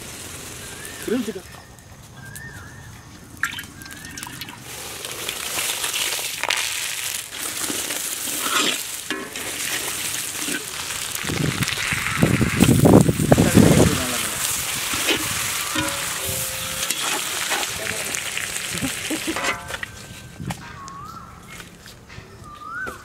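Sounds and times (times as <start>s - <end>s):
hot oil sizzling in a wok: 0.0s - 1.4s, 3.7s - 19.8s.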